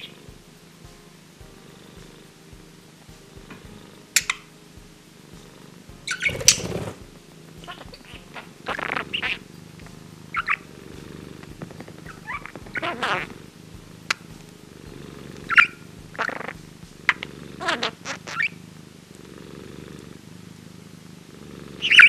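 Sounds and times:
cat purring: 0:00.0 - 0:22.0
budgerigar chirping: 0:06.1 - 0:06.8, 0:07.6 - 0:09.5, 0:10.3 - 0:10.7, 0:12.0 - 0:13.4, 0:15.4 - 0:18.6, 0:21.8 - 0:22.0.

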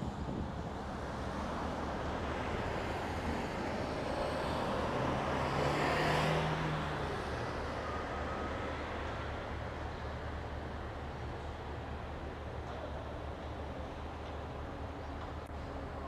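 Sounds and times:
traffic and machinery hum: 0:00.0 - 0:16.0
vehicle passing by: 0:02.8 - 0:08.5.

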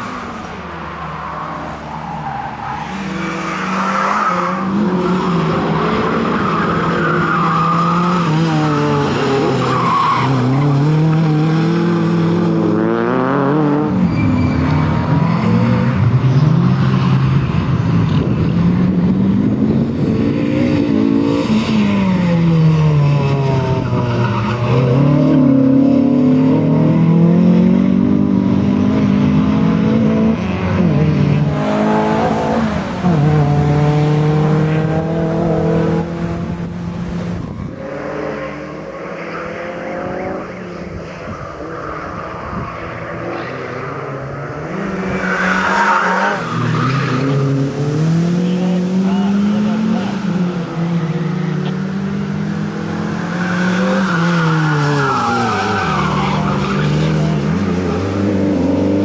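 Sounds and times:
car engine revving: 0:18.2 - 0:59.0.

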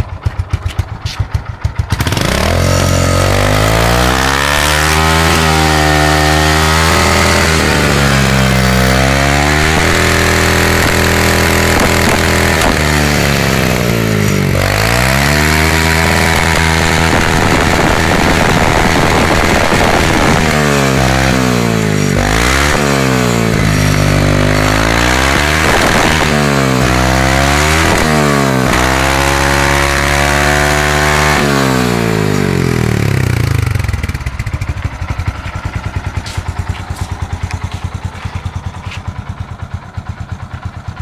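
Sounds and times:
motorcycle engine idling: 0:00.0 - 0:04.3, 0:16.1 - 0:25.0, 0:31.8 - 0:41.0
motorcycle engine revving: 0:00.0 - 0:41.0.

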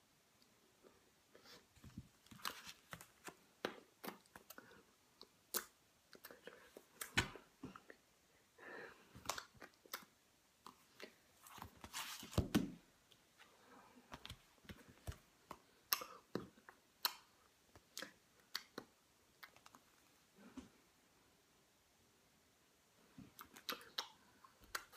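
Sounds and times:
rustling: 0:10.8 - 0:12.8.

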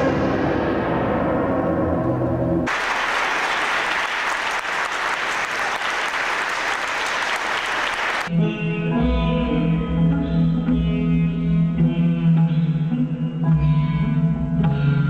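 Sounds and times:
audience applause: 0:02.7 - 0:08.3.

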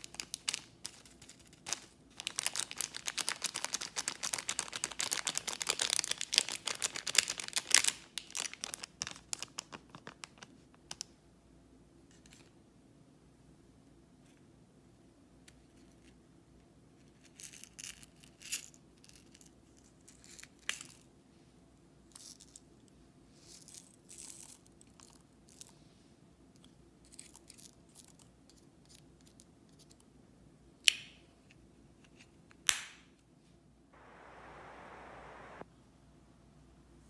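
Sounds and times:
plastic compact crackling in slime: 0:00.0 - 0:11.1
steady hiss: 0:34.0 - 0:35.6.

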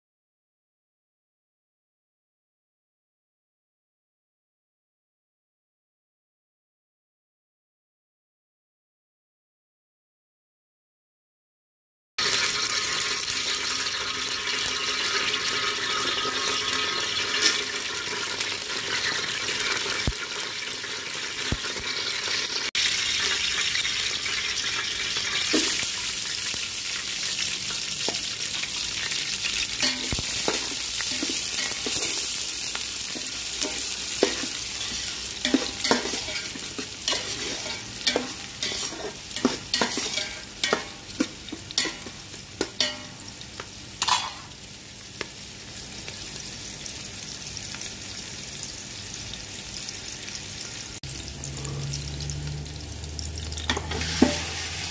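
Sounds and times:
metal spatula scraping pot: 0:12.2 - 0:18.2, 0:29.8 - 0:43.2, 0:44.0 - 0:44.5, 0:53.6 - 0:54.9
onions sizzling in oil: 0:12.2 - 0:54.9.

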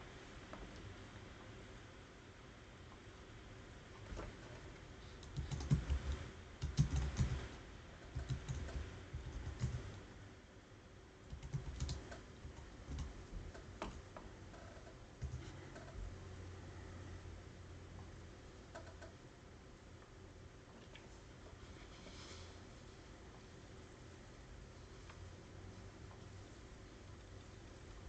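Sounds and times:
keyboard typing: 0:05.2 - 0:10.0, 0:11.3 - 0:14.1, 0:15.2 - 0:15.5.

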